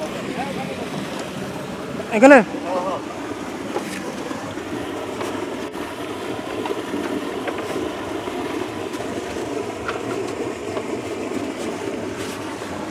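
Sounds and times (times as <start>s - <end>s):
stream rushing among boulders: 0.0s - 12.9s.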